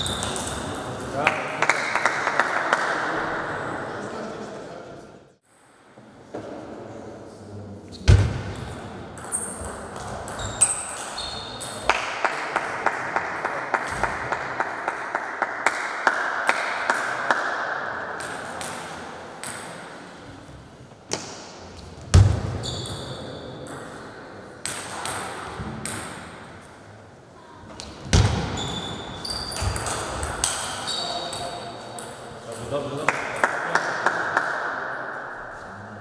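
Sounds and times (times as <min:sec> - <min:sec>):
shoe squeaks: 0:10.3 - 0:11.8, 0:22.6 - 0:23.4, 0:28.6 - 0:30.0, 0:30.6 - 0:31.7
table tennis ball bouncing: 0:24.6 - 0:26.3.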